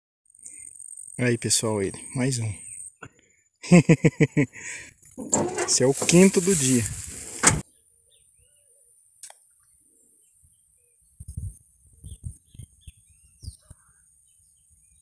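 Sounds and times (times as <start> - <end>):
faint bird chirps: 7.7 - 15.0
click: 9.2 - 9.4.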